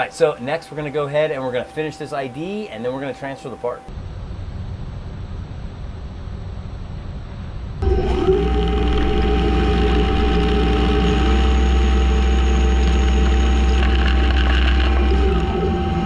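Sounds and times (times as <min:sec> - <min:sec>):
lathe humming with hiss: 0:07.8 - 0:16.0.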